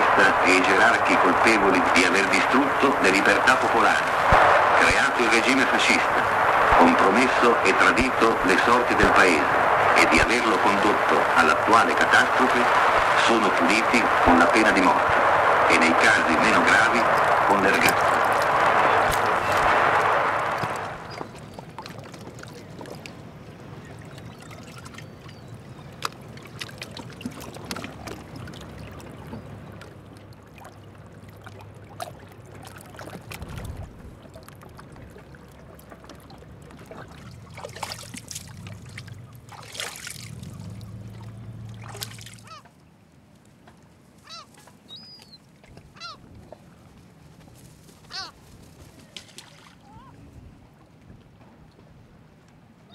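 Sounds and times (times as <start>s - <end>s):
low steady hum: 0.0s - 44.4s
small water splashes: 17.2s - 42.9s, 48.9s - 50.2s
water lapping among rocks: 20.5s - 42.6s
short bird calls: 42.4s - 42.7s, 44.2s - 45.4s.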